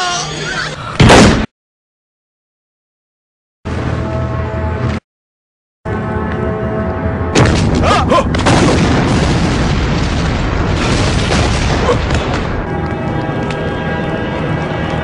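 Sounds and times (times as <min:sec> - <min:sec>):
background music: 0:05.9 - 0:08.8, 0:11.8 - 0:15.0.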